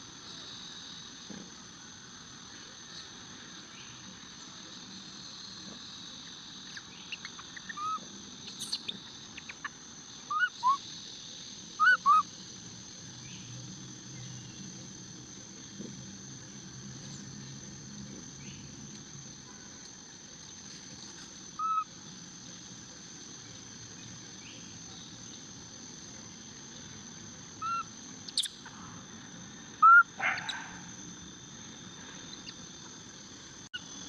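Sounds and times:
steady high hiss: 0.0 - 34.0
short arched chirping calls: 6.7 - 9.7, 10.3 - 10.8, 11.8 - 12.2, 27.6 - 28.6.

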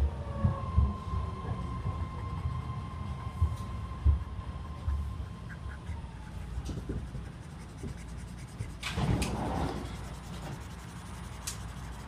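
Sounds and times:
subway car rumbling: 0.0 - 7.9
marker scratching on paper: 4.7 - 12.0.

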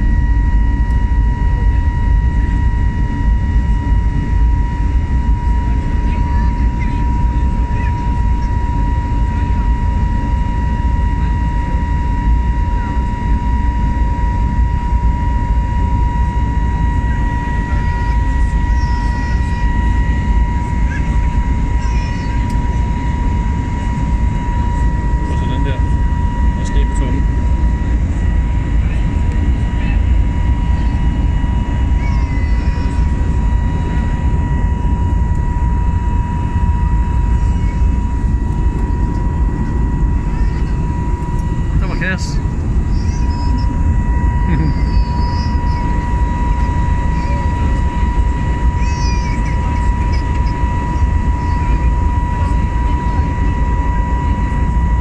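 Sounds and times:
airliner engine and airflow roar: 0.0 - 55.0
high whine: 0.0 - 55.0.

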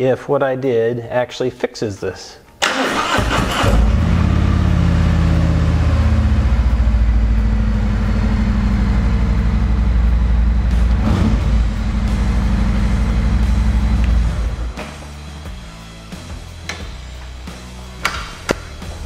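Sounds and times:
motorcycle starter cranking: 2.6 - 4.3
motorcycle engine idling: 4.2 - 14.6.

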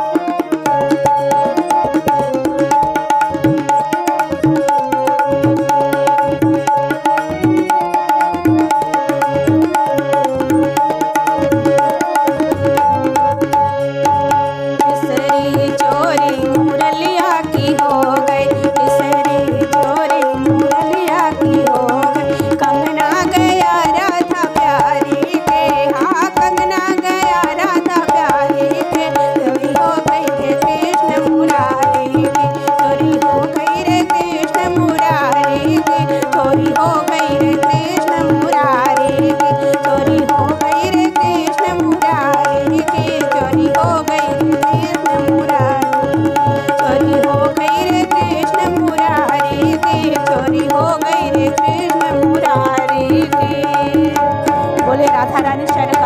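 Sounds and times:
harmonium: 0.0 - 56.0
tabla playing: 0.0 - 56.0
woman singing a folk song: 14.9 - 46.1, 46.8 - 54.2, 54.8 - 56.0.

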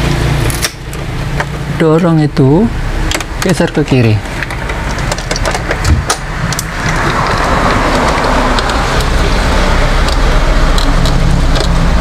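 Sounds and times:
busy road traffic rushing: 0.0 - 12.0.

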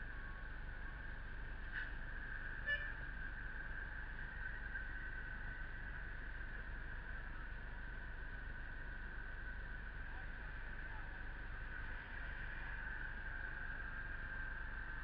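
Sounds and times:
high-pitched whine: 0.0 - 15.0
short pitched toot: 2.6 - 3.0.

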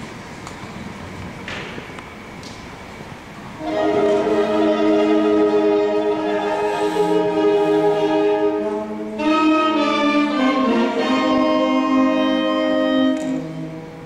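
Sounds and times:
wind band playing chords: 3.6 - 14.0.

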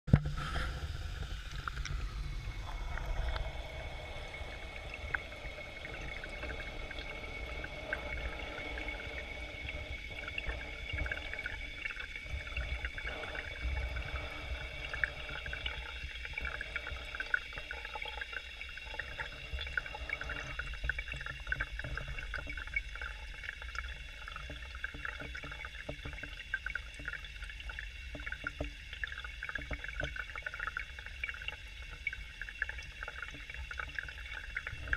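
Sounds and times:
faint high whine: 0.1 - 24.2
water bubbling underwater: 0.1 - 34.9
small crackling ticks: 15.4 - 34.9.

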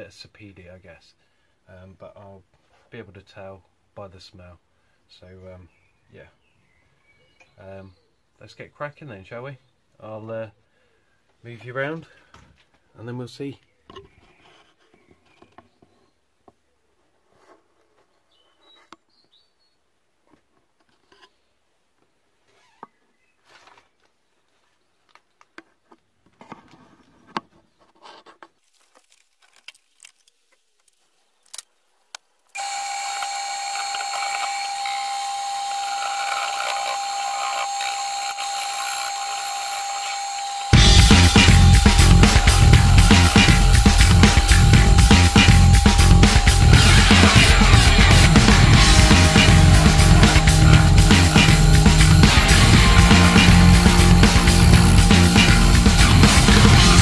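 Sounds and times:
wood lathe whining: 32.6 - 57.0.

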